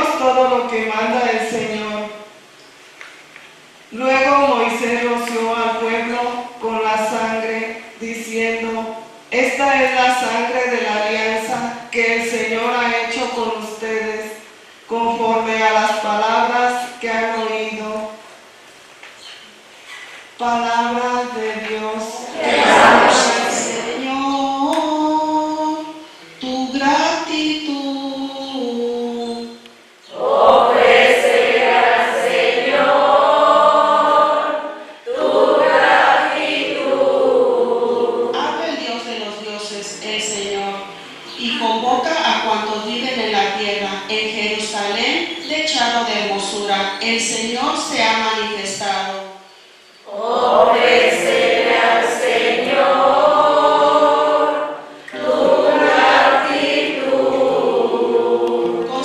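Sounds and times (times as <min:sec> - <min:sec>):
congregation singing: 0:20.4 - 0:38.8, 0:50.0 - 0:59.0.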